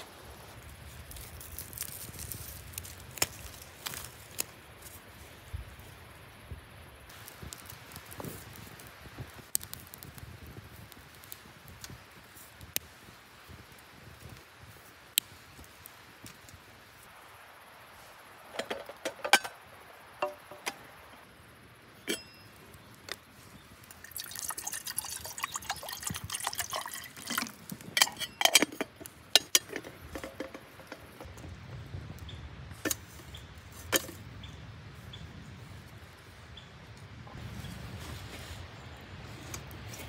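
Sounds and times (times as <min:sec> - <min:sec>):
camp cookware clinking: 0:18.5 - 0:21.2, 0:22.0 - 0:23.2, 0:23.8 - 0:31.3, 0:32.8 - 0:33.2, 0:33.8 - 0:34.2
liquid pouring: 0:23.9 - 0:28.2.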